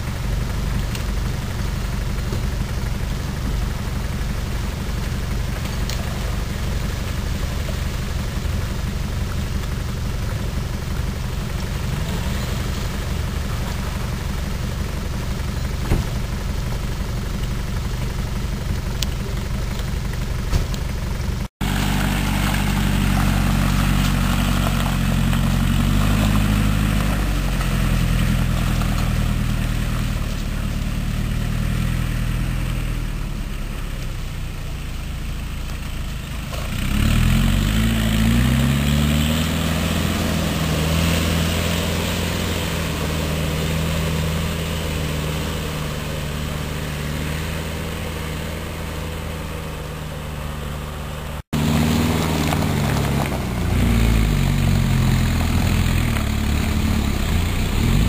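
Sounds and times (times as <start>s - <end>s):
off-road vehicle engine revving: 0.0s - 58.0s.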